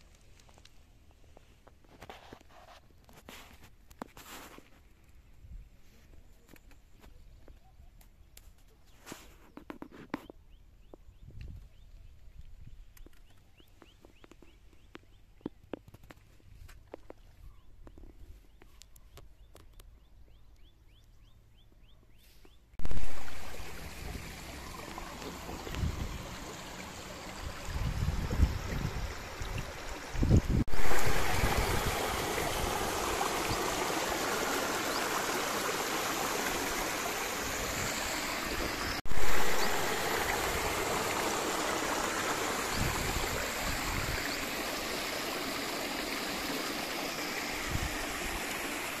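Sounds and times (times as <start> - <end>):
stream rushing over rocks: 22.8 - 49.0.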